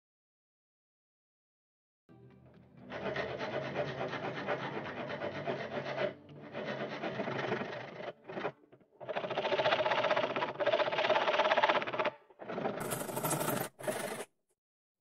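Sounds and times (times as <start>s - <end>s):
hand file rasping on wood: 2.9s - 14.3s.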